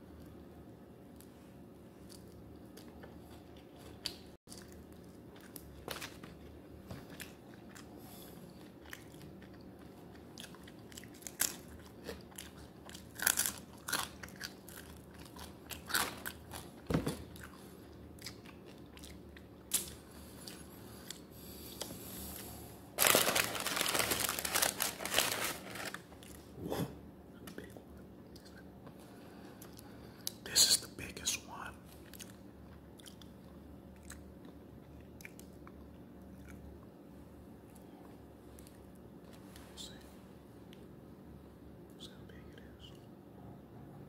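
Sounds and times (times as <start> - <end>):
crunching of fried chicken: 2.0 - 21.3, 23.0 - 26.4.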